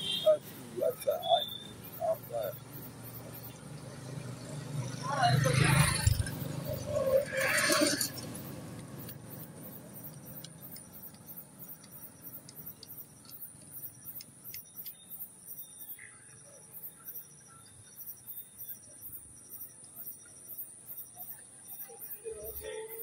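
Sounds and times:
crickets trilling: 0:00.0 - 0:23.0
faint ticks: 0:08.1 - 0:16.1.

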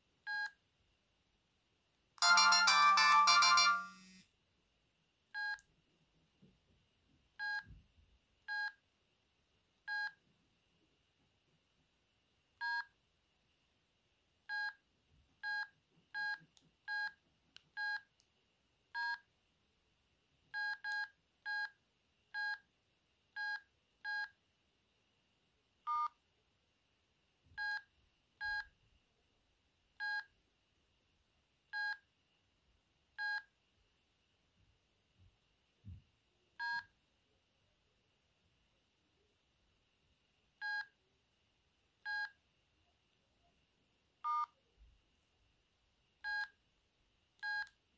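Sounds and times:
phone keypad beeps: 0:02.2 - 0:04.0.

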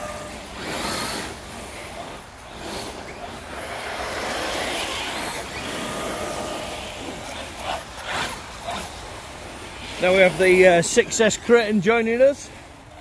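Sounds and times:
faint electric motor whine: 0:00.0 - 0:10.4
tyres churning dry leaves: 0:00.0 - 0:13.0.

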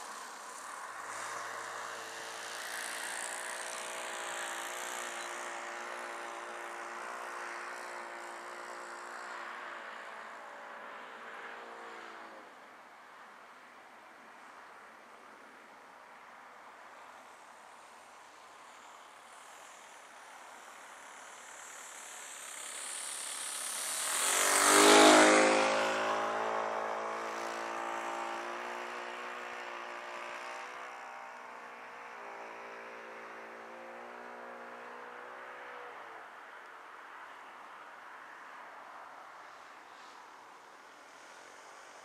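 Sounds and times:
model aeroplane engine flying past: 0:00.0 - 0:12.6, 0:17.2 - 0:36.0.

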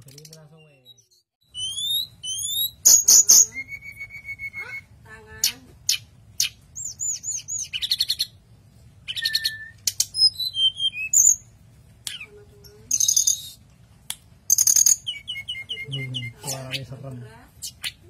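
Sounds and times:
flycatcher singing: 0:12.1 - 0:13.6, 0:14.5 - 0:18.0.

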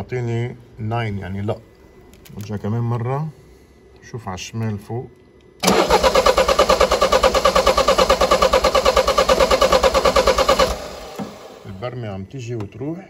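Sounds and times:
car engine cranking: 0:05.6 - 0:11.6.

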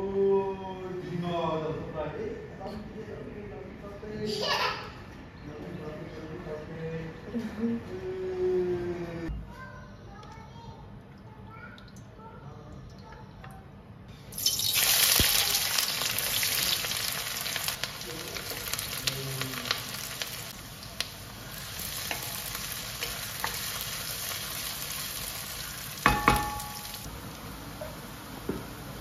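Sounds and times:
onions sizzling in hot oil: 0:14.3 - 0:29.0
spoon knocking on metal pan: 0:26.0 - 0:27.1.

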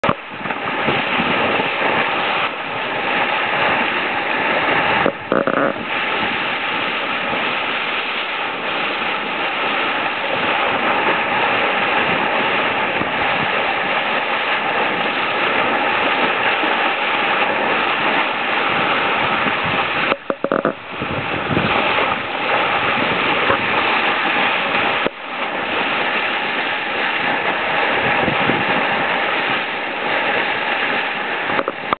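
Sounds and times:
water rushing along boat hull: 0:00.0 - 0:32.0.

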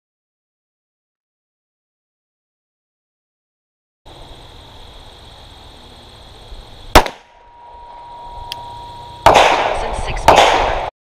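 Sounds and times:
faint outdoor background: 0:04.1 - 0:10.9
pistol shot: 0:06.9 - 0:07.4, 0:09.2 - 0:10.9
steady high-pitched tone: 0:07.2 - 0:10.3.

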